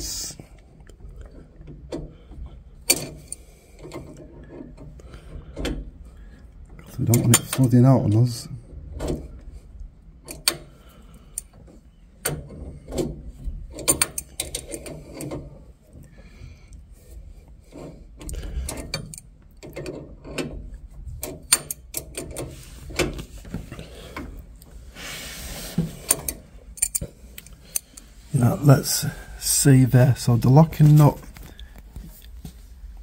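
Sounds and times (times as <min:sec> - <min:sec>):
spanner metallic clicks and scrapes: 0:02.8 - 0:05.9, 0:06.8 - 0:08.2, 0:09.0 - 0:24.8, 0:25.4 - 0:28.2.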